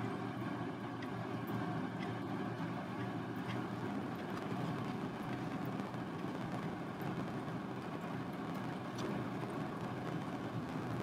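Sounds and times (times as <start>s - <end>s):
low background rumble: 0.0s - 11.0s
faint light ticks: 1.0s - 2.2s, 3.0s - 5.9s.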